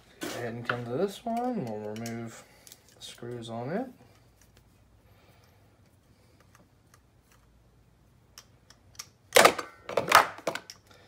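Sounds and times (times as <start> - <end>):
parts clattering on workbench: 8.9 - 10.9.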